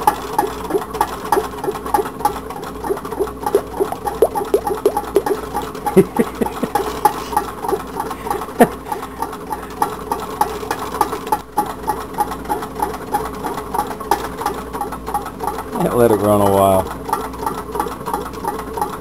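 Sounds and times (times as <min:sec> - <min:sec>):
engine knocks: 0:00.0 - 0:19.0
stirling engine ticking: 0:00.0 - 0:19.0.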